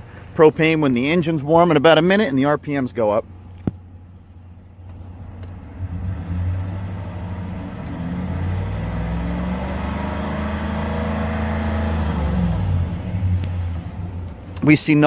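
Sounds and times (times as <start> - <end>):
truck engine revving: 4.4 - 15.0.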